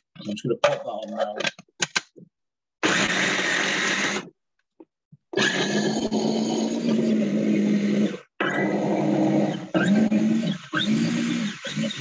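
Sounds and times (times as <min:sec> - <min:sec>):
food processor chopping: 0:02.8 - 0:04.3, 0:05.3 - 0:12.0.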